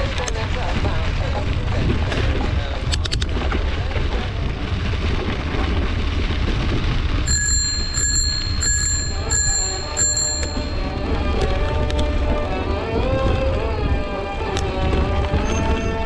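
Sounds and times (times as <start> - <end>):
wind and riding rumble: 0.0 - 16.0
bicycle bell ringing: 7.2 - 11.4.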